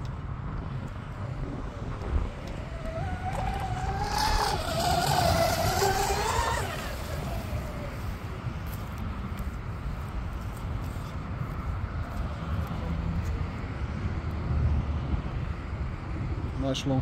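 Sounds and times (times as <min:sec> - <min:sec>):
speedboat motors whining: 0:00.6 - 0:09.0.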